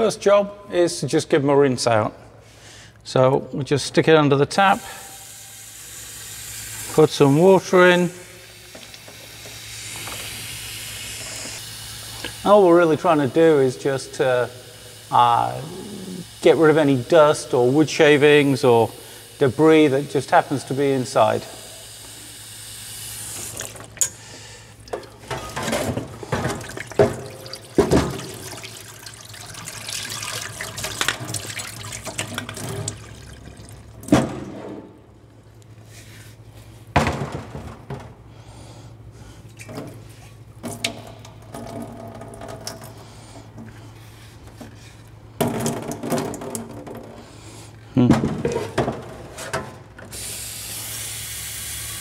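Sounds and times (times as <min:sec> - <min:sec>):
tap water running into barrel: 0:23.3 - 0:24.1, 0:24.8 - 0:34.3, 0:40.6 - 0:43.8, 0:45.4 - 0:47.2
water sloshing in barrel: 0:24.9 - 0:34.2
water splashing into metal sink: 0:24.9 - 0:34.2.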